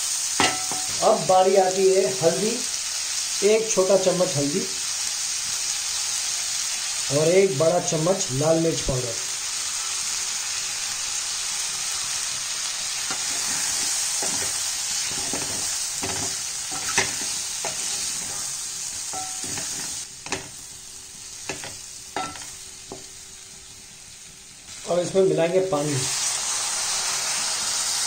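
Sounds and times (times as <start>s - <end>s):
food sizzling in hot oil: 0.0s - 28.0s
spatula scraping a pan: 13.0s - 20.5s.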